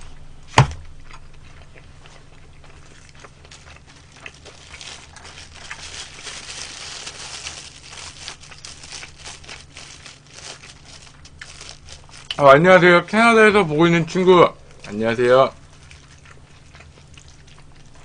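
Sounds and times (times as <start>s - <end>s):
plastic glove crinkling: 2.8s - 13.0s.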